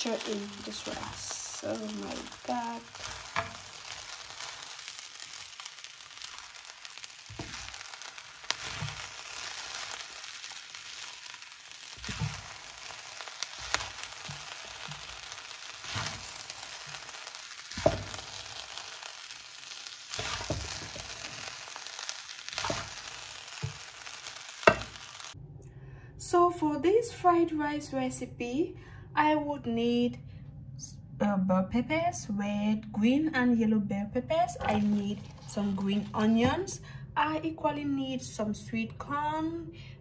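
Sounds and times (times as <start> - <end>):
wooden spatula scraping and knocking: 0.0 - 4.7, 7.2 - 10.0, 11.9 - 17.1, 17.7 - 18.9, 20.1 - 21.6, 22.5 - 23.9, 24.6 - 25.1, 34.5 - 36.7
rice sizzling in a hot pan: 0.0 - 25.4, 34.6 - 36.7.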